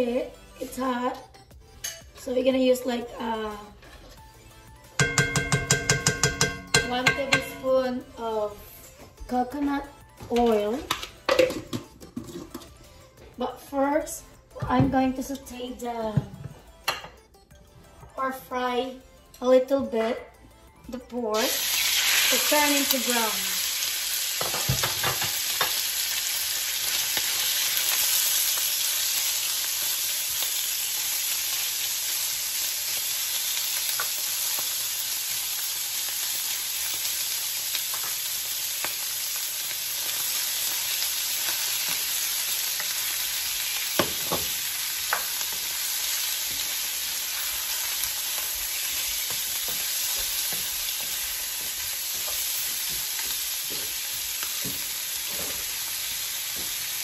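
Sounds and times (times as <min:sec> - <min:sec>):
meat sizzling in a skillet: 0:05.0 - 0:08.0, 0:21.4 - 0:57.0.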